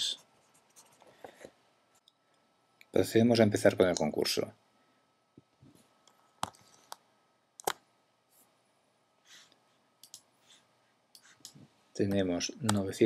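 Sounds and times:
computer mouse clicks: 7.6s - 7.8s, 10.0s - 10.3s
soft breath: 9.2s - 11.4s.

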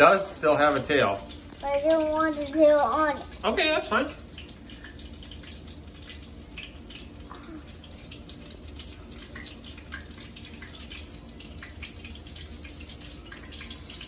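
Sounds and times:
fish frying in hot oil: 0.0s - 14.0s.

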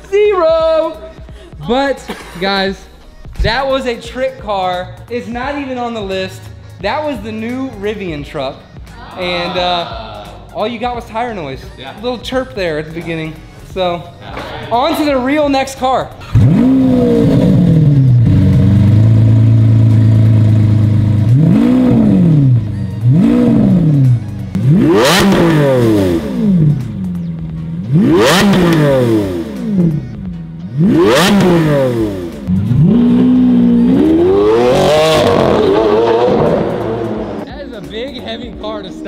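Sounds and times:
car engine revving: 14.9s - 39.0s.

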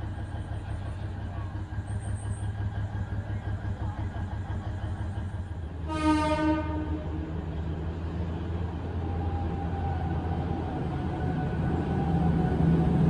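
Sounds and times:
train rumble: 0.0s - 13.0s
train horn blast: 5.8s - 7.2s.

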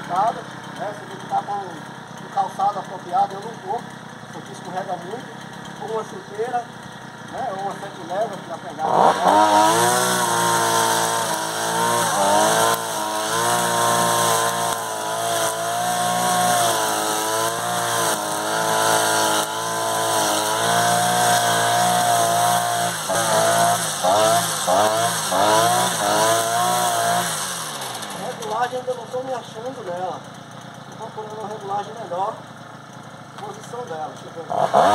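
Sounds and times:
brushcutter engine at high speed: 0.0s - 34.9s
nylon line cutting grass: 7.4s - 28.8s, 34.4s - 34.9s.

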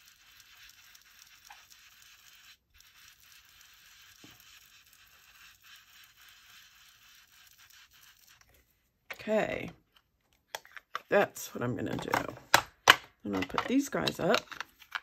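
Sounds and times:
small ticks: 0.0s - 4.7s
scratching and rubbing on paper: 0.0s - 8.7s.

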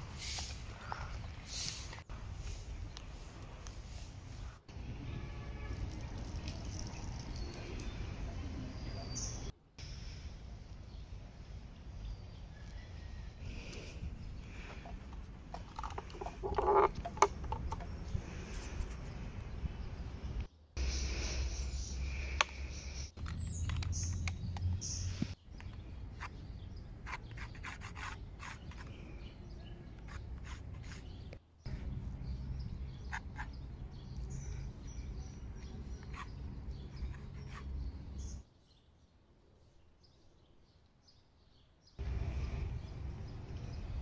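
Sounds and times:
bird chirps: 5.6s - 10.2s.

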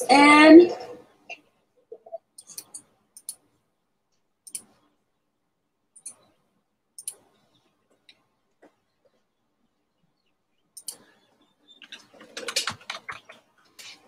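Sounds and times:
faint computer mouse clicks: 10.8s - 11.1s.

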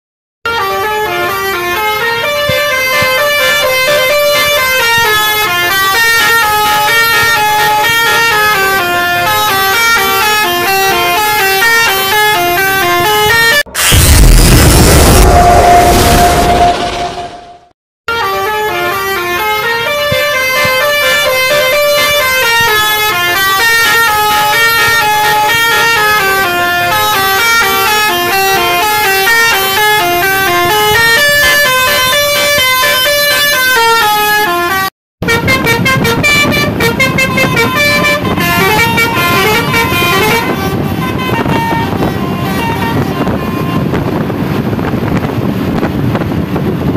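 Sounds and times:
bus horn playing melody: 0.4s - 14.0s, 14.9s - 46.2s.

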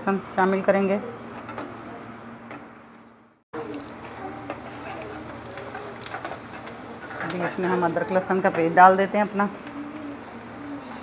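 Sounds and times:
onions sizzling in oil: 3.6s - 11.0s
metal spatula scraping: 4.5s - 8.8s.

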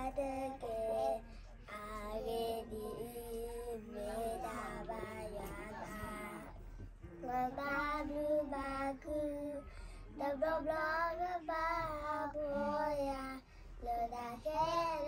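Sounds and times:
girl singing: 0.0s - 6.5s, 10.2s - 15.0s.

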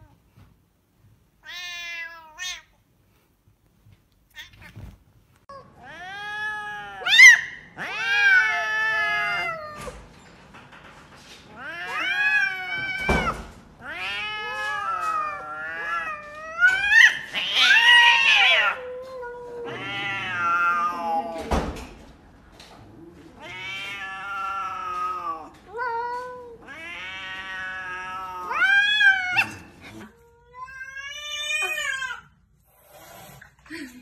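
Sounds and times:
cats yowling: 5.5s - 10.0s, 11.5s - 21.6s, 22.9s - 32.3s.

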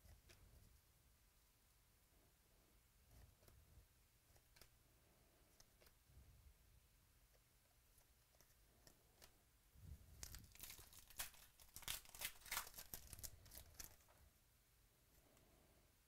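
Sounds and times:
foil wrapper tearing and crinkling: 10.2s - 14.0s.

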